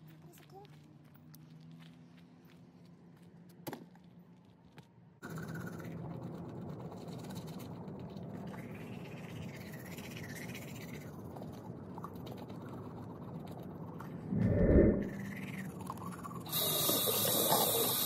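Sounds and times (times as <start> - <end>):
toothbrush scrubbing teeth: 5.2 - 13.7
steady low hum: 13.6 - 15.6.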